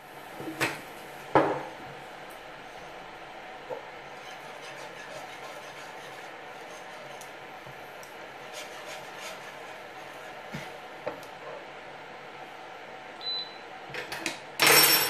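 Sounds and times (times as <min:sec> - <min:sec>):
whisk stirring sauce in pan: 0:03.8 - 0:11.6
whisk clinking against pan: 0:04.1 - 0:07.4, 0:08.4 - 0:10.5.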